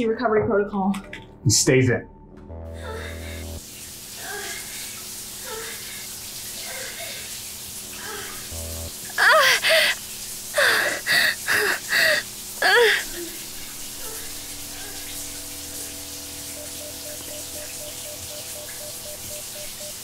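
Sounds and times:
faint musical drone: 0:00.0 - 0:03.7, 0:13.0 - 0:20.0
person crying out: 0:09.1 - 0:10.0, 0:10.6 - 0:13.3.

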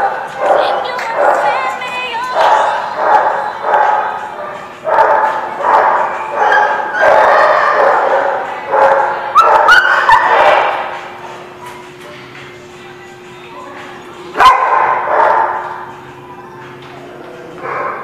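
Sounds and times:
dogs barking: 0:00.0 - 0:11.0, 0:14.3 - 0:16.0, 0:17.1 - 0:18.0
dog yipping: 0:05.0 - 0:08.2.

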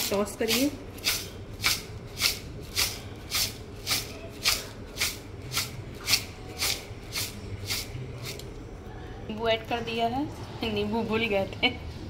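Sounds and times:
puffed rice tossed in bowl: 0:00.5 - 0:07.9.

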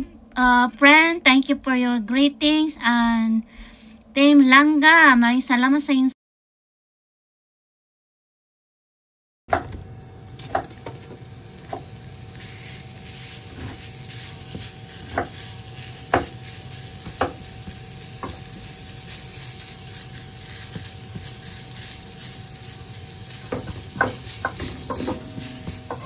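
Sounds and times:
meat sizzling in a frying pan: 0:10.4 - 0:26.0
spatula knocking against pan: 0:23.5 - 0:26.0.

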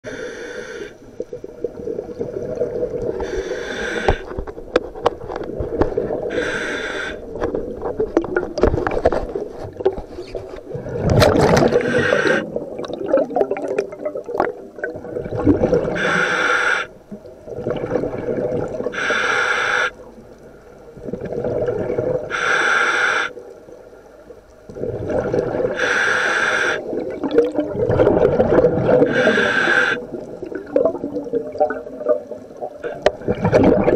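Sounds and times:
hissing regulator inhale: 0:00.1 - 0:01.0, 0:03.2 - 0:04.3, 0:06.3 - 0:07.3, 0:11.8 - 0:12.5, 0:16.0 - 0:16.9, 0:18.9 - 0:20.0, 0:22.3 - 0:23.4, 0:25.7 - 0:26.9, 0:29.0 - 0:30.1
gurgle of exhaled bubbles: 0:01.2 - 0:04.5, 0:07.2 - 0:16.2, 0:17.2 - 0:19.0, 0:20.9 - 0:22.4, 0:24.6 - 0:25.9, 0:26.7 - 0:33.9.

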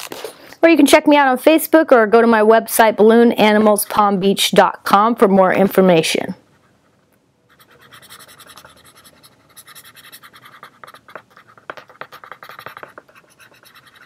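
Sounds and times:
marker scratching on balloon: 0:06.5 - 0:14.0.

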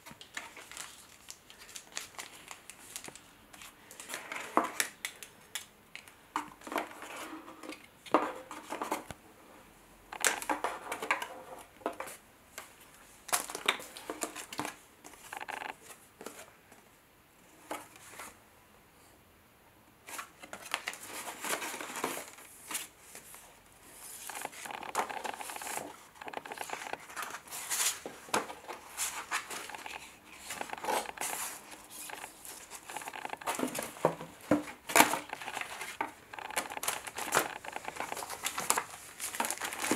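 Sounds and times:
paper and plastic rustling: 0:00.0 - 0:09.1, 0:10.1 - 0:16.5, 0:20.0 - 0:39.9.

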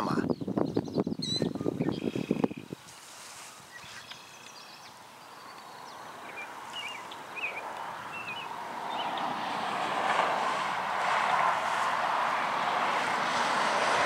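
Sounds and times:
birds chirping: 0:00.0 - 0:02.8, 0:03.4 - 0:09.6
vehicle road noise: 0:01.6 - 0:14.0.

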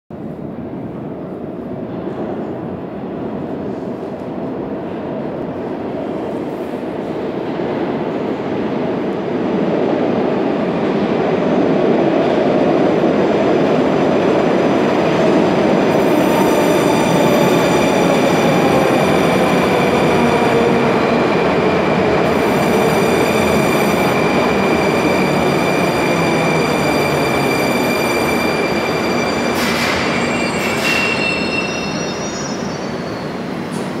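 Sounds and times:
falling whine of train: 0:00.2 - 0:34.0
train wheels rumbling on rails: 0:01.2 - 0:34.0
high-pitched squeal: 0:22.4 - 0:33.8.

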